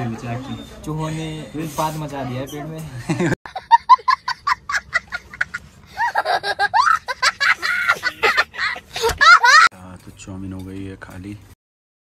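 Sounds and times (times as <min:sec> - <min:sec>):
child laughing hysterically: 0:03.5 - 0:09.7.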